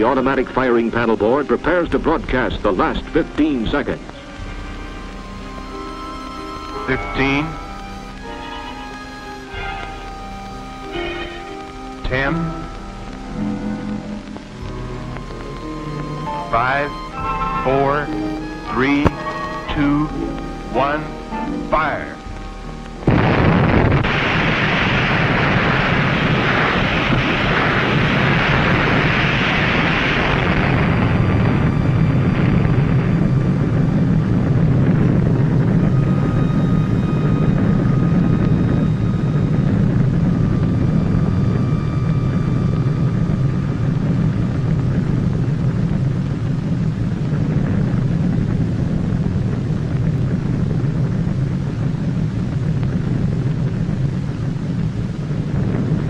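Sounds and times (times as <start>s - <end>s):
loud rush of noise: 0.0s - 56.0s
low rumble: 0.0s - 56.0s
underwater explosion: 21.8s - 56.0s.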